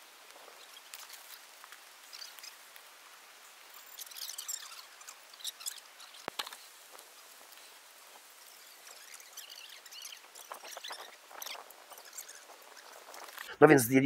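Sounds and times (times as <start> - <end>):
scraping and rustling of soil: 0.0 - 13.6
scratchy crackles: 3.7 - 13.6.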